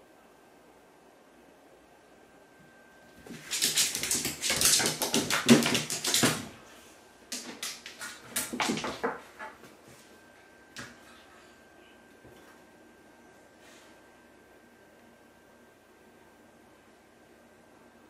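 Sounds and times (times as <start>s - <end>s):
paws clattering on hard floor: 3.2s - 6.5s, 7.4s - 9.6s.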